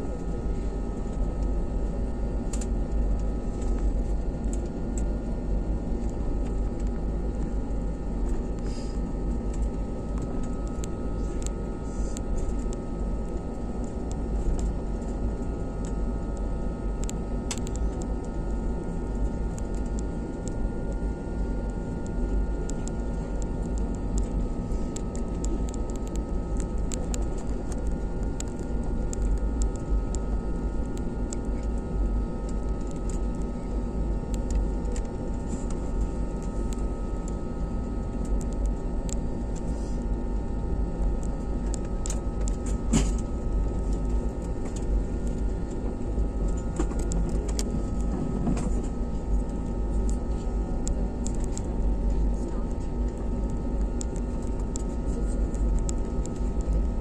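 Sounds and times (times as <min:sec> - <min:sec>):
aircraft cabin engine hum: 0:00.0 - 0:57.0.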